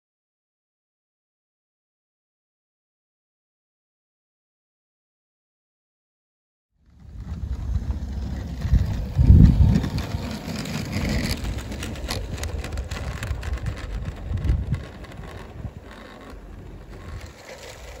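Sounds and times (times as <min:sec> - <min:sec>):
model train rattling on track: 0:06.9 - 0:18.0
wind rumble on microphone: 0:06.9 - 0:18.0.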